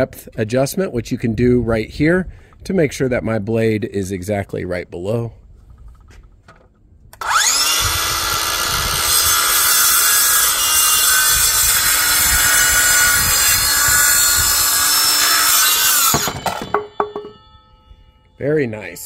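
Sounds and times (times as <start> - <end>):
circular saw cutting wood: 7.2 - 17.4.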